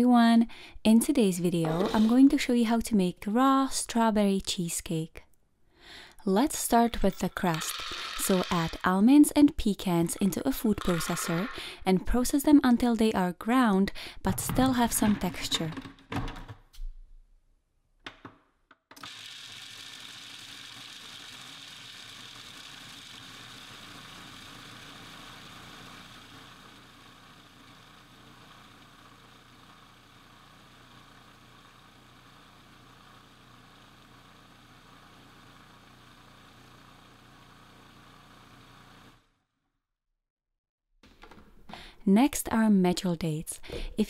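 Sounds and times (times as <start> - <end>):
food processor grinding nuts: 1.7 - 2.2, 7.2 - 8.9, 10.2 - 11.8, 19.0 - 39.2.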